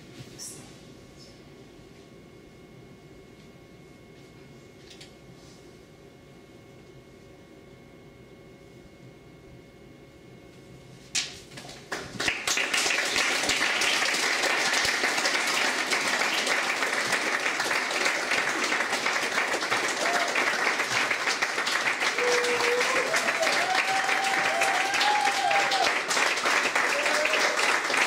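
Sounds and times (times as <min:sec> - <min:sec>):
audience applauding: 0:11.9 - 0:28.0.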